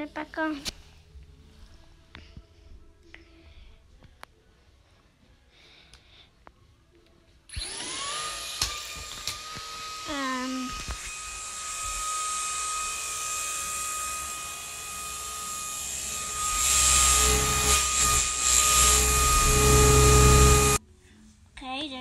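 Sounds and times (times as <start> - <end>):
small electric motor whining: 7.5 - 20.8.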